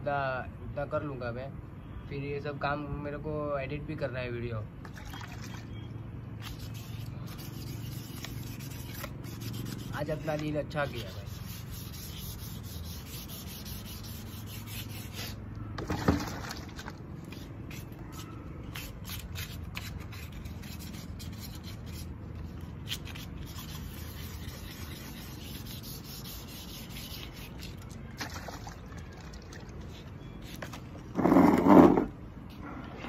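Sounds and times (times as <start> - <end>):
hand sanding scratchy rubbing: 6.4 - 15.4, 17.2 - 27.8.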